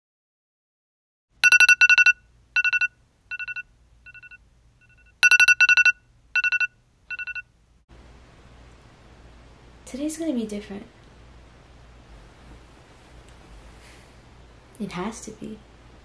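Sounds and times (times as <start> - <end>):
phone alarm beeping: 1.4 - 7.4.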